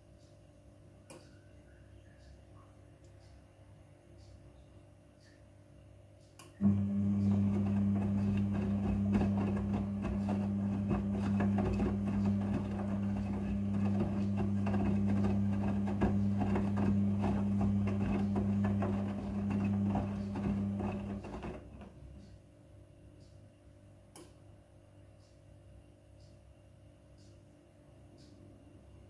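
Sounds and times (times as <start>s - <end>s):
washing machine motor humming: 6.6s - 22.2s.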